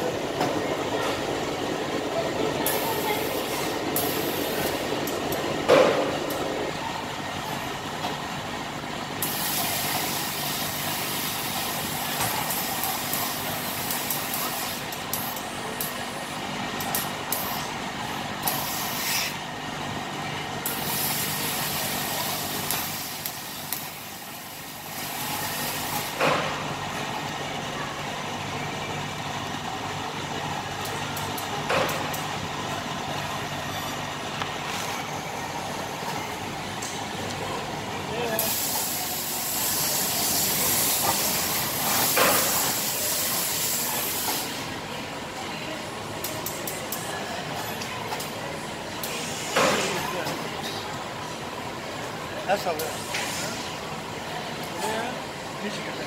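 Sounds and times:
steady machine hum: 0:00.0 - 0:42.1.

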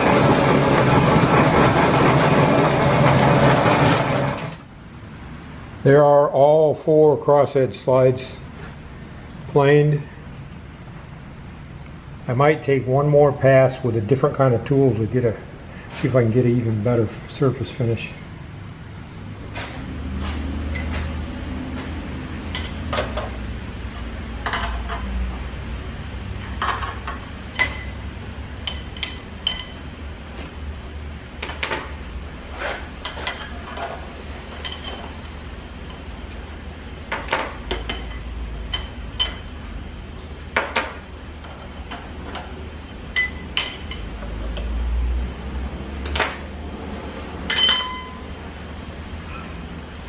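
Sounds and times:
wrench and clamps clinking on metal: 0:47.5 - 0:48.2.

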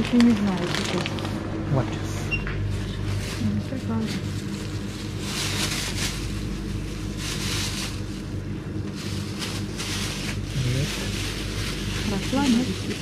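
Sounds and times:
plastic bag rustling: 0:00.0 - 0:01.7, 0:02.6 - 0:13.0
low hum: 0:00.0 - 0:13.0.

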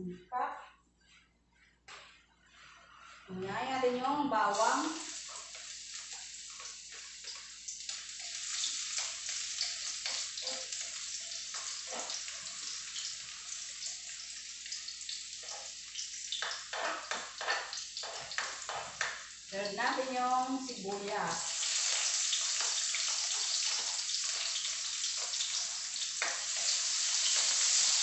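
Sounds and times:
garlic sizzling in oil: 0:03.6 - 0:28.0
spatula scraping and tapping wok: 0:05.1 - 0:13.2, 0:15.3 - 0:19.4, 0:21.6 - 0:28.0.

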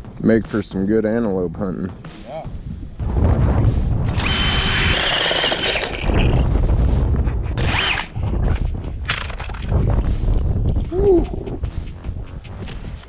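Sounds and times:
wind rumble on microphone: 0:02.6 - 0:05.2, 0:06.0 - 0:13.0
drill motor whine with ice grinding: 0:04.1 - 0:06.4, 0:07.6 - 0:08.1.

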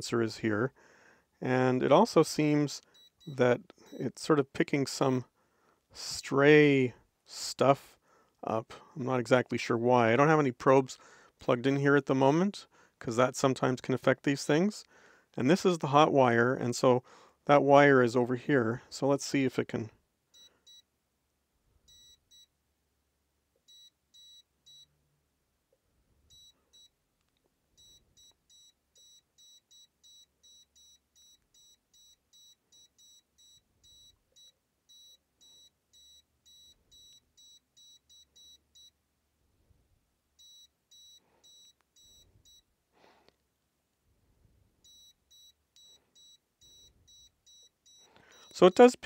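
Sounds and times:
multimeter short high beeps: 0:21.9 - 0:22.5, 0:23.7 - 0:24.9, 0:26.3 - 0:26.9, 0:27.8 - 0:39.0, 0:40.4 - 0:42.7, 0:44.8 - 0:49.0.

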